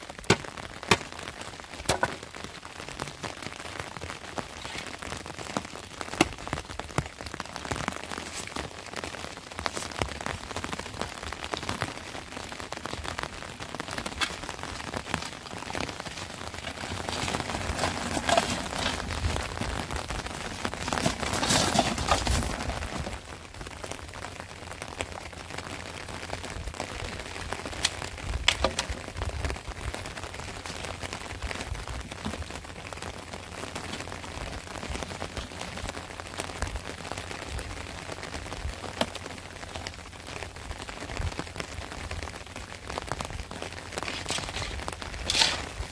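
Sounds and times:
steady rain falling: 0.0s - 45.9s
metal wheelbarrow knocks: 1.9s - 2.2s, 16.6s - 19.3s
shovel digging wet dirt: 44.0s - 45.9s.

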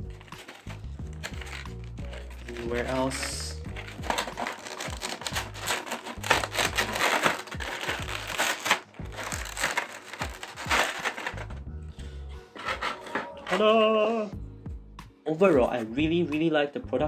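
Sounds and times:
plastic trays crackling: 0.0s - 11.6s
background music with bass: 0.0s - 17.0s.

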